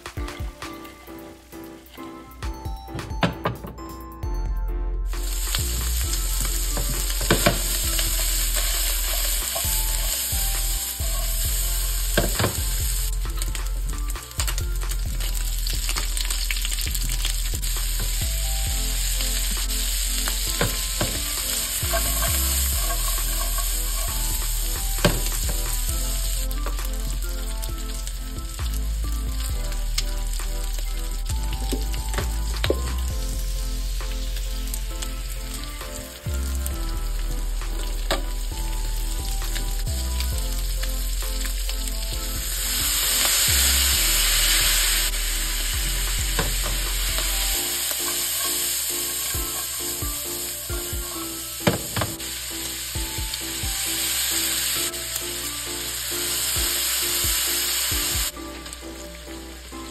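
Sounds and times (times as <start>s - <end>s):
pork sizzling in pan: 0.0s - 2.6s, 5.1s - 59.9s
knocks and scrapes of stirring: 20.4s - 26.9s.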